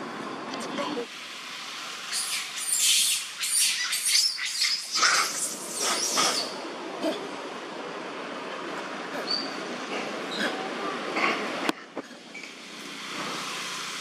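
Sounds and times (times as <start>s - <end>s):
infant monkey screaming: 2.1s - 6.6s.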